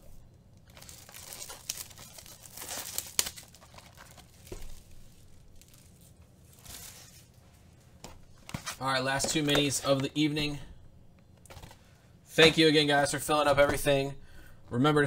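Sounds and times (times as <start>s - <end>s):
plastic wrapper crinkling and tearing: 0.6s - 7.4s.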